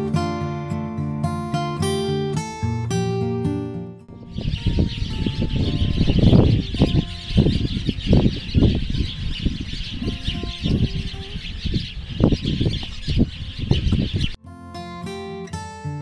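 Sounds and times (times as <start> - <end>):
wind buffeting microphone: 4.1 - 14.4
swallows twittering: 4.3 - 14.4.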